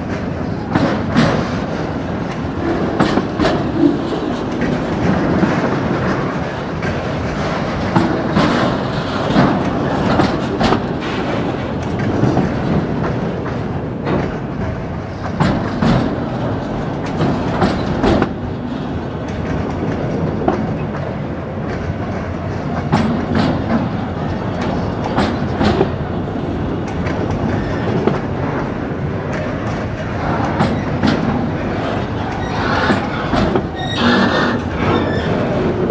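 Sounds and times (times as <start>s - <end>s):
freight train rumble: 0.0s - 35.9s
train wheels clacking over rail joints: 0.0s - 35.9s.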